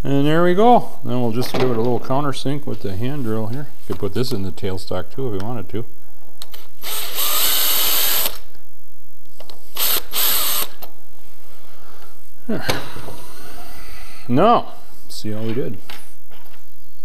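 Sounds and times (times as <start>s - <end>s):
cordless drill cutting steel: 6.8s - 8.4s, 9.8s - 10.8s.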